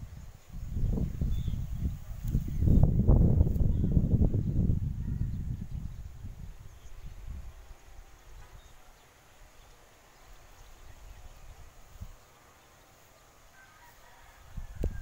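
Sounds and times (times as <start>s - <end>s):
wind rumble on microphone: 0.0s - 8.8s, 14.2s - 15.0s.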